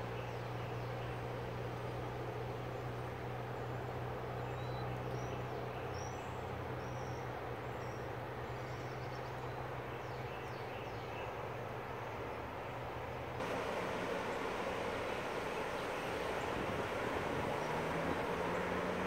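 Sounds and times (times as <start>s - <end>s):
low engine hum: 0.0s - 19.0s
highway traffic rushing: 13.4s - 19.0s
river rushing: 13.4s - 19.0s.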